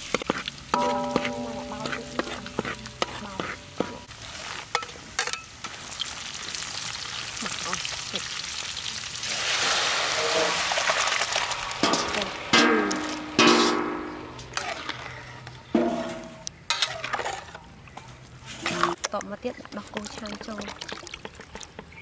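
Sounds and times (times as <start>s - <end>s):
metal spatula scraping wok: 0.0s - 5.5s, 9.6s - 10.8s, 11.8s - 19.0s
chilies sizzling in hot oil: 0.0s - 15.0s.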